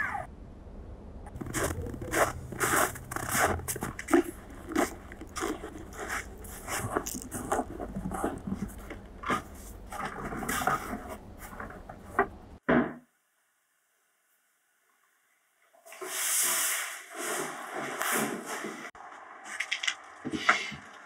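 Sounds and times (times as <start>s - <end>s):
footsteps crunching in snow: 1.3s - 12.4s.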